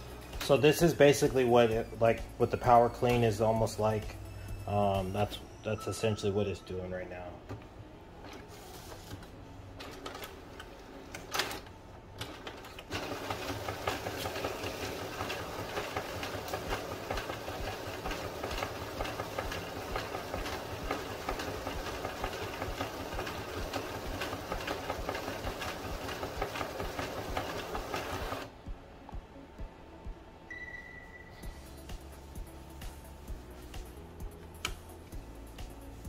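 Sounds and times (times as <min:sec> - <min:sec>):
printer mechanism whirring and ticking: 0:12.2 - 0:28.5.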